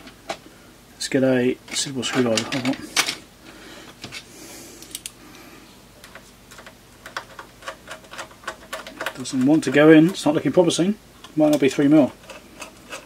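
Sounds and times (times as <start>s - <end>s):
screwdriver and screw clicking on metal: 6.0s - 10.2s, 11.2s - 13.0s.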